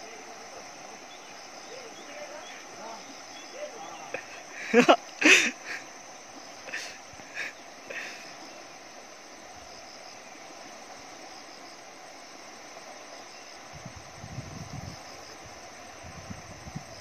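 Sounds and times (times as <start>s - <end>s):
fast-flowing river rushing: 0.0s - 13.2s
faint insect chirping: 0.0s - 17.0s.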